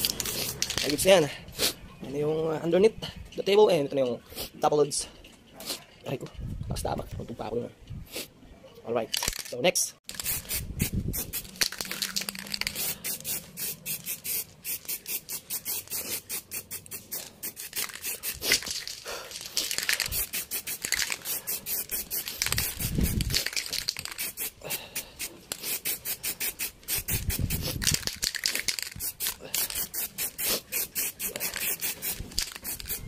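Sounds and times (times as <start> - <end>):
spray can rattling: 0.0 - 1.1, 9.1 - 33.0.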